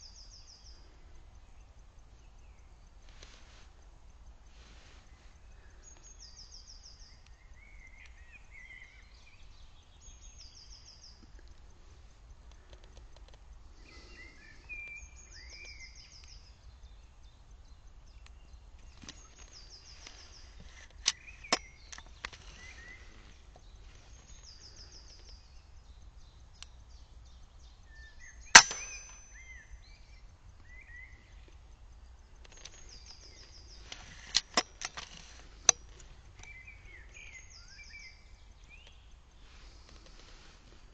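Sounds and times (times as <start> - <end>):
songbirds singing: 0.0 - 40.9
air rifle shots cracking: 28.5 - 29.4.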